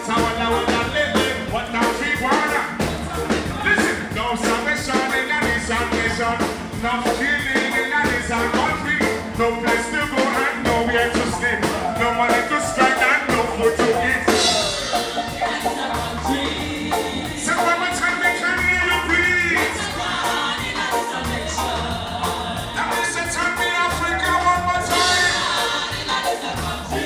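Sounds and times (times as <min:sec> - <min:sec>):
man singing into a microphone: 0:00.0 - 0:15.1, 0:16.2 - 0:20.0, 0:22.8 - 0:25.4
loud amplified music: 0:00.0 - 0:27.0
steady drum beat: 0:00.0 - 0:27.0.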